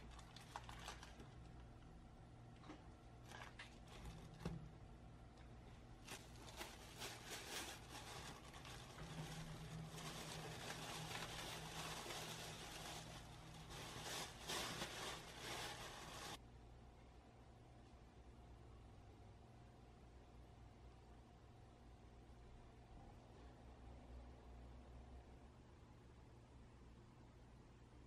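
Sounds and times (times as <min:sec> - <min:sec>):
plastic bag rustling: 0:00.0 - 0:01.6, 0:03.2 - 0:04.7, 0:06.0 - 0:16.4
parchment paper crackling: 0:00.0 - 0:01.7, 0:06.0 - 0:16.4
low steady hum: 0:00.0 - 0:28.0.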